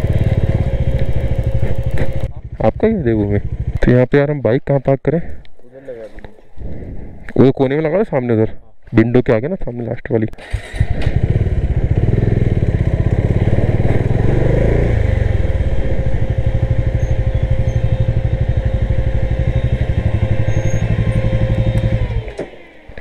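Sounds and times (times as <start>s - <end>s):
motorcycle engine running at low revs: 0.0s - 4.1s, 10.8s - 23.0s.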